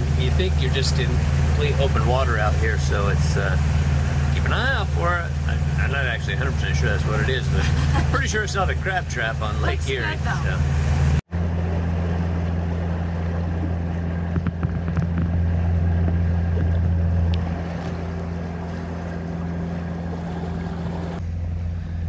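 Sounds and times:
boat engine droning: 0:00.0 - 0:22.0
water wash: 0:00.0 - 0:22.0
wind: 0:00.0 - 0:22.0.

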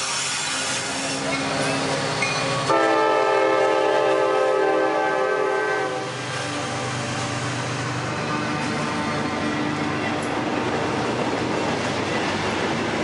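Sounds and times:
freight train rumbling past: 0:00.0 - 0:13.0
locomotive horn: 0:02.6 - 0:06.9.

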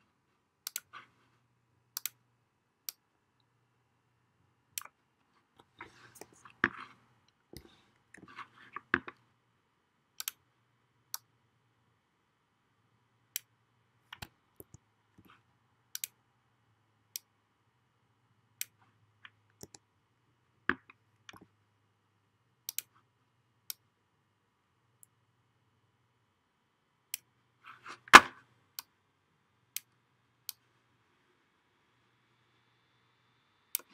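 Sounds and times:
faint steady hum: 0:00.0 - 0:33.9
computer mouse clicks: 0:00.6 - 0:01.1, 0:01.9 - 0:02.2, 0:10.2 - 0:10.4, 0:15.9 - 0:16.2, 0:19.5 - 0:19.9, 0:22.6 - 0:23.0.

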